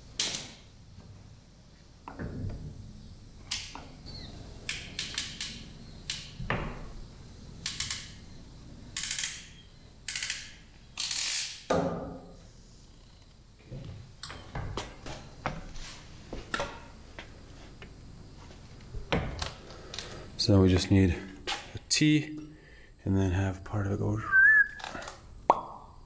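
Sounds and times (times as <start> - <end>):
hand tool clicks: 10.1 - 11.6.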